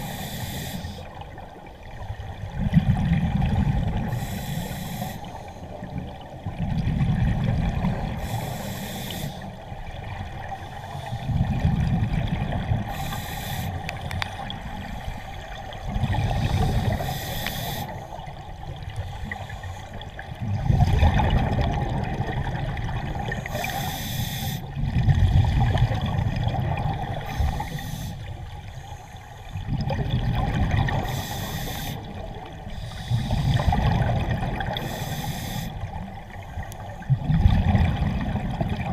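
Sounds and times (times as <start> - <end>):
regulator inhalation hiss: 0.0 - 1.1, 4.1 - 5.6, 8.2 - 9.5, 12.9 - 13.8, 16.4 - 18.1, 23.5 - 24.7, 27.3 - 29.2, 31.0 - 32.1, 32.7 - 33.8, 34.8 - 35.9
exhaled air bubbling: 0.0 - 28.7, 29.4 - 38.9.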